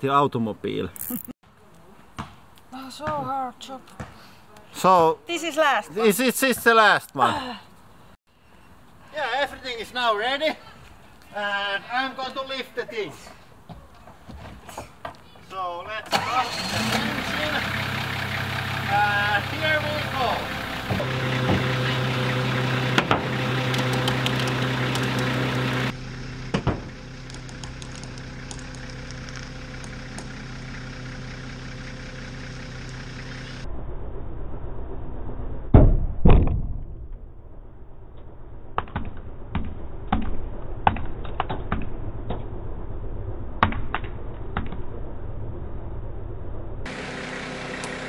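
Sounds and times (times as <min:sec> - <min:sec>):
machine engine idling: 0:16.2 - 0:33.6, 0:46.6 - 0:48.0.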